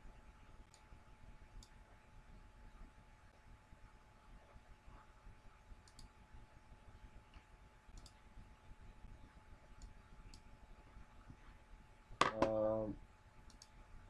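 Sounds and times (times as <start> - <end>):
faint steady hum: 0.0 - 14.0
computer mouse clicks: 1.6 - 1.8, 5.8 - 6.2, 7.3 - 8.2, 9.7 - 10.5, 13.5 - 13.8.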